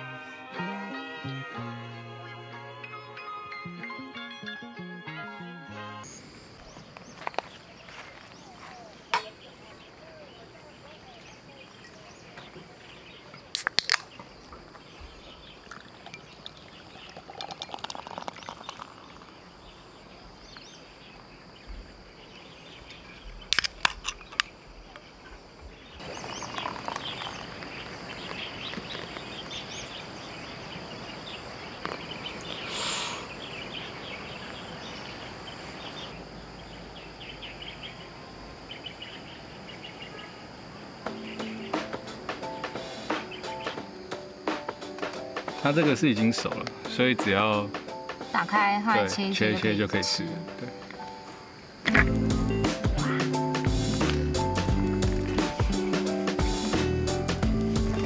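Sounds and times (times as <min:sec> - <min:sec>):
bird chirps: 0:06.0 - 0:44.0
high insect drone: 0:06.0 - 0:58.0
beer cans clicking: 0:13.5 - 0:14.1, 0:15.7 - 0:19.3
beer pouring and fizzing: 0:15.6 - 0:19.6, 0:26.0 - 0:27.5.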